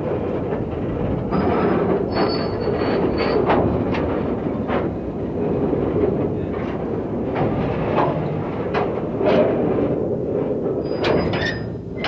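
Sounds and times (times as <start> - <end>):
rumble of train wheels: 0.0 - 12.0
short sharp squeaks or clanks: 1.3 - 3.5, 10.8 - 12.0
high wheel squeal: 2.1 - 3.4.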